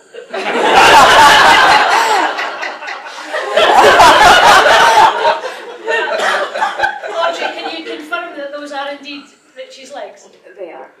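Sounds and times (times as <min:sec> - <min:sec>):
crowd laughing loudly: 0:00.0 - 0:08.1.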